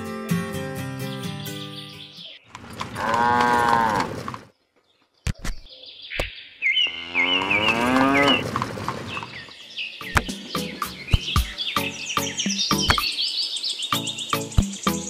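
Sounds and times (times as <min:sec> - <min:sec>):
cow mooing: 0:02.9 - 0:04.2, 0:06.8 - 0:08.5
sharp clicks: 0:05.2 - 0:06.3
high chirping: 0:09.2 - 0:15.0.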